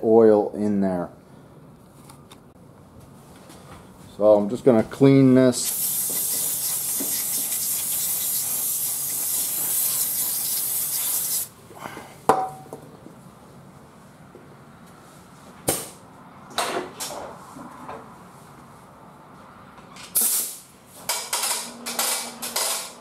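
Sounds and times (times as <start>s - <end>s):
aerosol spray hissing: 5.6s - 11.5s.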